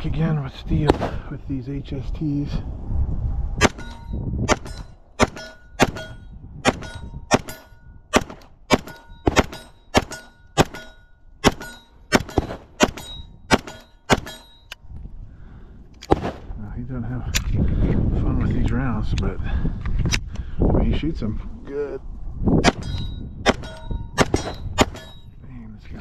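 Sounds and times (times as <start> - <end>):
pistol shots: 3.6 - 14.4, 16.1 - 16.5, 22.6 - 25.2
steel targets ringing: 3.6 - 14.8, 22.7 - 25.4.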